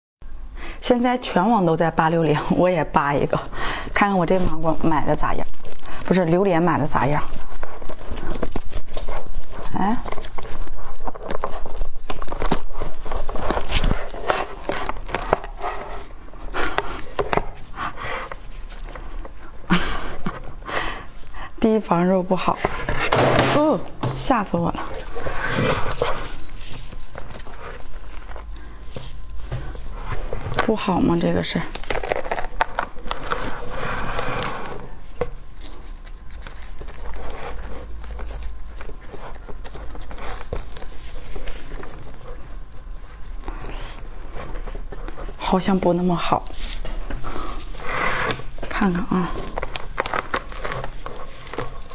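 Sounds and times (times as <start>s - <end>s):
plastic gloves crinkling: 1.7s - 51.9s
spiky fruit husk cracking: 4.0s - 17.7s, 30.6s - 45.1s, 46.4s - 51.9s.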